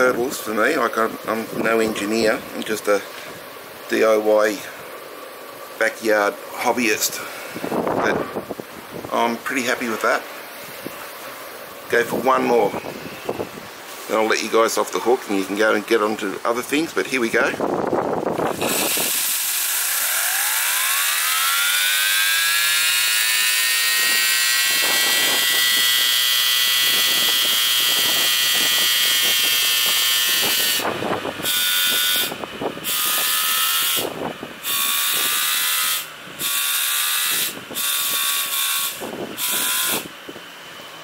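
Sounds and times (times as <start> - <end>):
steam turbine hissing and whining: 18.3 - 41.0.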